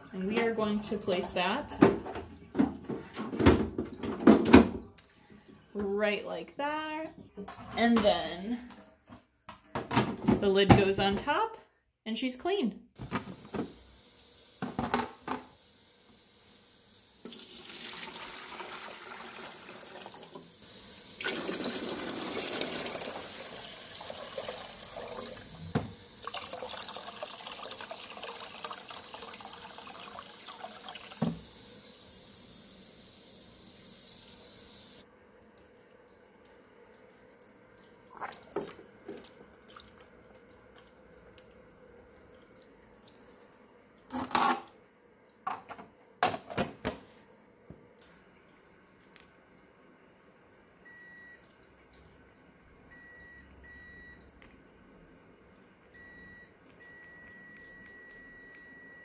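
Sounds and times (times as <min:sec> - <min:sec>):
water pouring into a tank: 0:17.2 - 0:32.3, 0:35.4 - 0:45.0.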